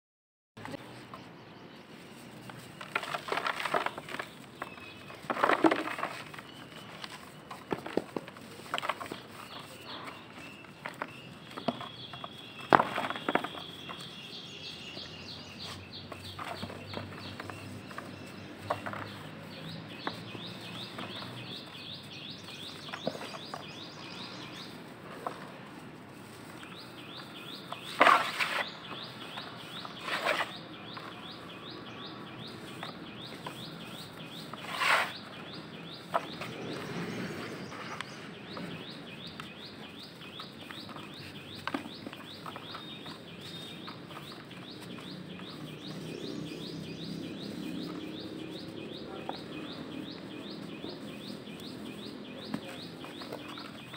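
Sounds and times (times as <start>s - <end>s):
bird chirping: 0.6s - 53.9s
dirt crunching: 0.6s - 53.9s
dirt trickling into plastic bucket: 2.3s - 14.1s.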